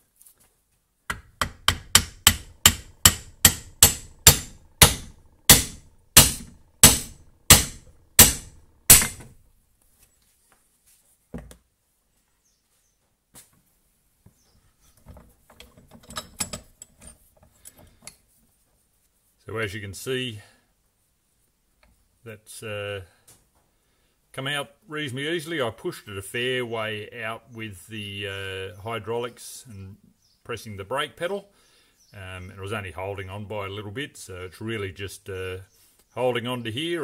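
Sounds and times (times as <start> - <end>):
hammer striking metal: 1.1 - 9.4.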